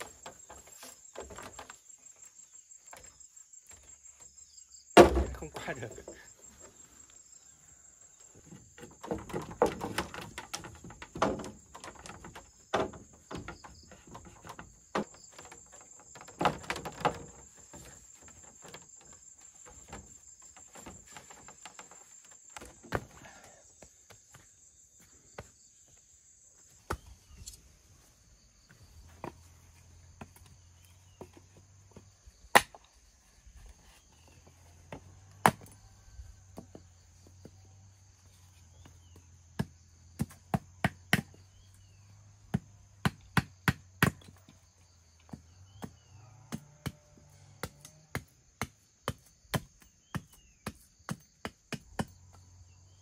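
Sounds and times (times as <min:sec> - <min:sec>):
knocks and rustles: 0:00.0 - 0:06.9, 0:08.3 - 0:24.6
insects chirring: 0:00.0 - 0:53.0.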